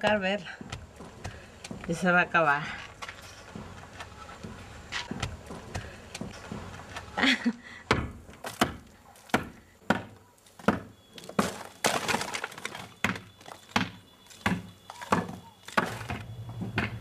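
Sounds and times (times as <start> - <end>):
hand tool breaking brick: 7.9 - 16.2.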